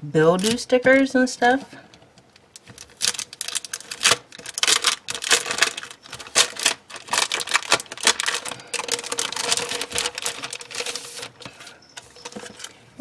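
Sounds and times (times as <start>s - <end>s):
cellophane sleeve crinkling: 2.2s - 12.8s.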